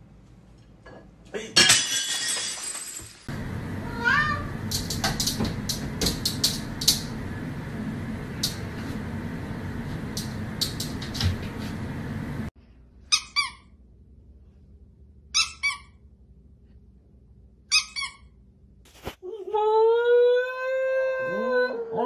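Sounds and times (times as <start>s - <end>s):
squeaky toy squeaking: 13.1s - 13.7s, 15.4s - 16.0s, 17.7s - 18.3s.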